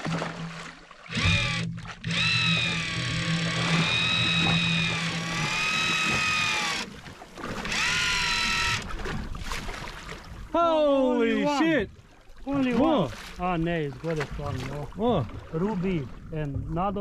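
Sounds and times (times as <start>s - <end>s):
low steady hum: 0.0s - 9.1s
electric fishing reel motor whine: 1.1s - 7.0s, 7.6s - 8.9s.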